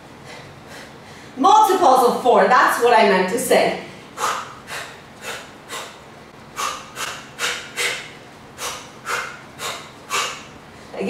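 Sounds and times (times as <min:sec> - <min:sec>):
woman's sharp hissing exhales: 0:06.6 - 0:10.5.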